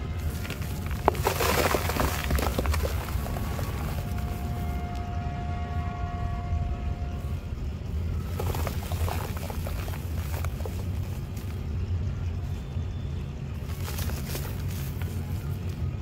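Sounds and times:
steady low rumble: 0.0s - 16.0s
dry mud crumbling in hand: 0.1s - 4.8s, 8.2s - 11.7s, 13.6s - 15.9s.

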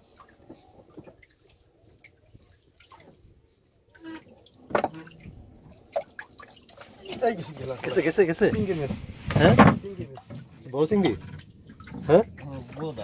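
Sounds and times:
fish splashing: 0.0s - 8.2s
water lapping and dripping: 0.0s - 13.0s.

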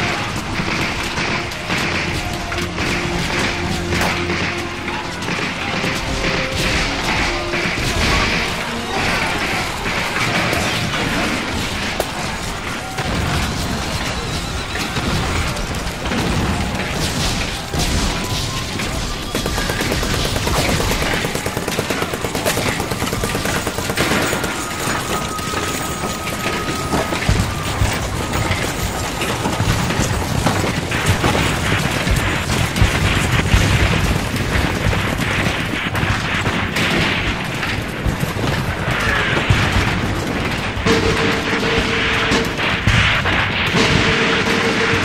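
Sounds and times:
background music: 0.0s - 34.4s
rifle volleys: 0.0s - 44.8s.

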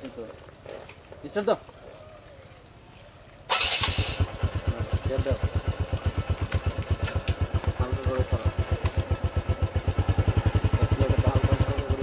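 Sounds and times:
small engine running: 3.5s - 12.0s.

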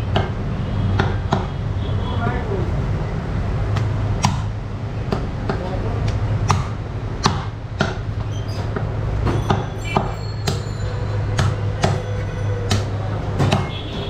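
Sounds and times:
knife chopping meat on wood: 1.0s - 1.5s, 3.7s - 8.0s, 11.4s - 12.0s, 12.6s - 13.7s.

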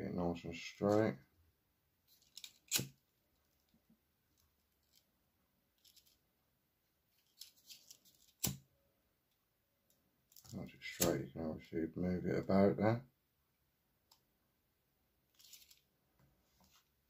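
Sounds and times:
handling ticks and rustles: 2.1s - 5.1s, 5.8s - 6.2s, 15.3s - 15.9s.

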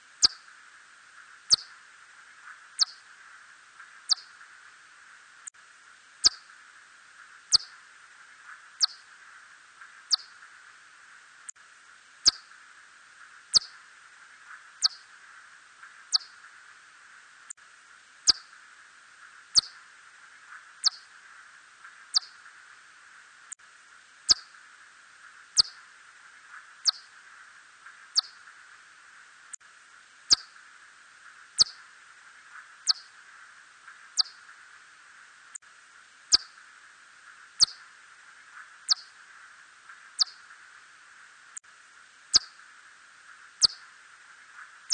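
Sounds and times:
steady hiss: 0.0s - 44.9s
bat chirps sweeping downward: 16.1s - 16.3s, 19.6s - 19.8s, 28.2s - 28.4s, 31.6s - 31.8s, 34.2s - 34.4s, 37.6s - 37.8s, 38.9s - 39.1s, 40.2s - 40.4s, 43.6s - 43.8s.

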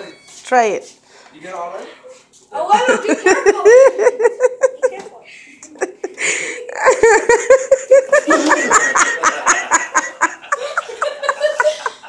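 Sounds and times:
people laughing hard: 2.8s - 4.9s, 5.6s - 12.0s.

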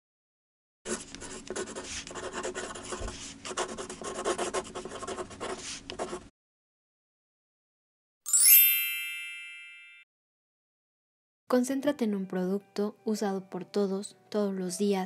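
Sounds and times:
pen shading on paper: 0.9s - 6.3s.

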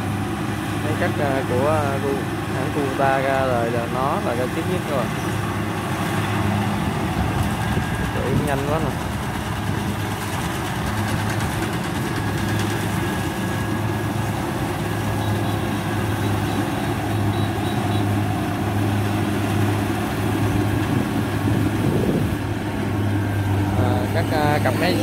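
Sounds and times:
combine harvester diesel engine: 0.0s - 25.0s.

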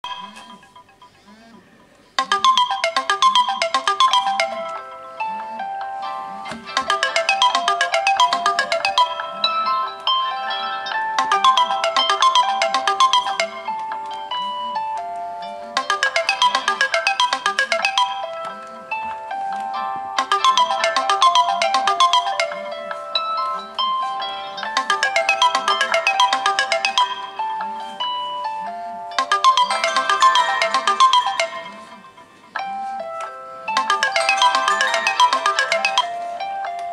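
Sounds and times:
phone alarms ringing: 0.0s - 1.4s, 2.2s - 4.8s, 6.7s - 13.8s, 15.8s - 18.5s, 20.2s - 23.3s, 24.2s - 27.6s, 29.1s - 32.2s, 33.7s - 36.5s.

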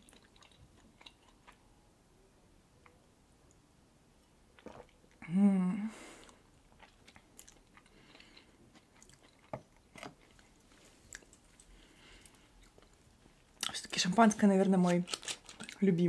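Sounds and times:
chewing: 0.0s - 1.6s, 6.2s - 13.8s, 15.0s - 15.8s.

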